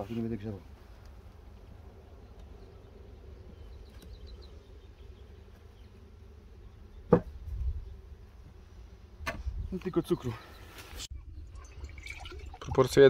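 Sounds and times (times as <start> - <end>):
knock on wooden board: 7.1 - 7.3.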